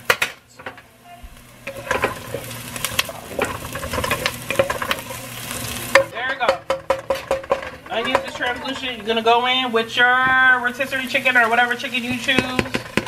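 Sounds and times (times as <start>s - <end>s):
onions sizzling in oil: 0.0s - 13.0s
spatula scraping and clicking pot: 1.6s - 9.6s, 11.4s - 13.0s.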